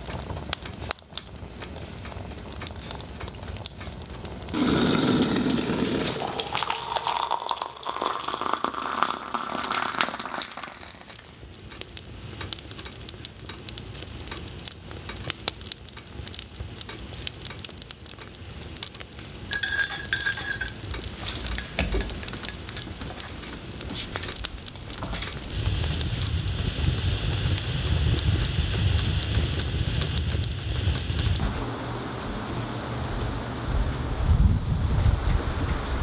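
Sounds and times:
spoon clinking in ceramic mug: 0:19.5 - 0:20.9, 0:21.5 - 0:23.0.

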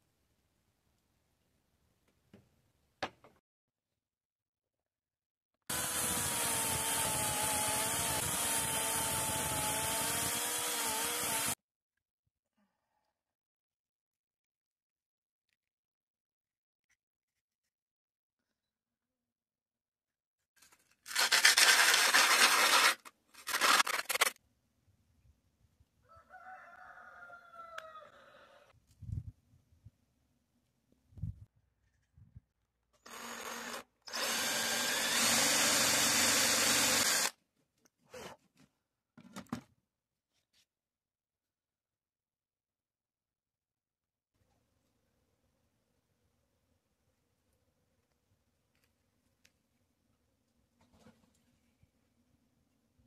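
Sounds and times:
rooster crowing: 0:26.0 - 0:28.6.

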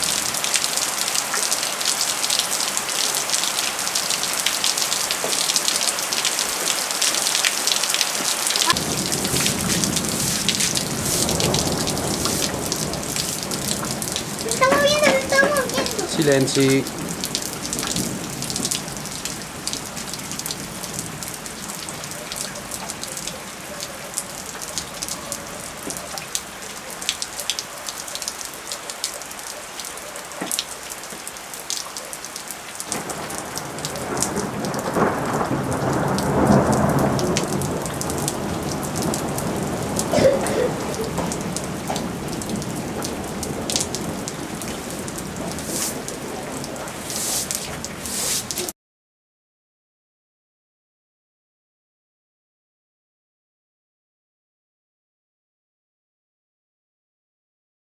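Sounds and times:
rain falling: 0:00.0 - 0:48.7
raindrops ticking: 0:00.0 - 0:48.7
deep thunder rumble: 0:08.7 - 0:16.2, 0:16.8 - 0:22.1, 0:32.9 - 0:47.0.

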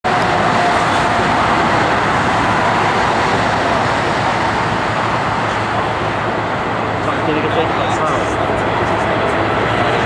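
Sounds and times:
jet engines rumbling and hissing: 0:00.0 - 0:10.0.

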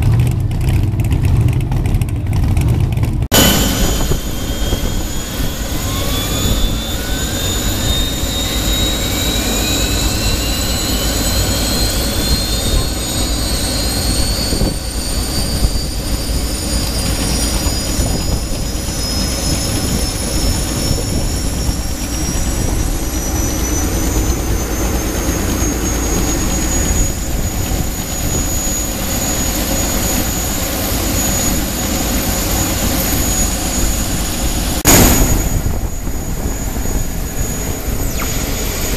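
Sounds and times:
low rumble: 0:00.0 - 0:38.9
turbine engine whine: 0:00.0 - 0:38.9.

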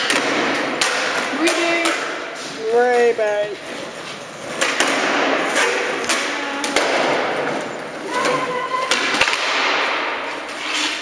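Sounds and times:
skateboard wheels rolling on concrete: 0:00.0 - 0:11.0
skateboard wooden clacks: 0:04.5 - 0:07.6.

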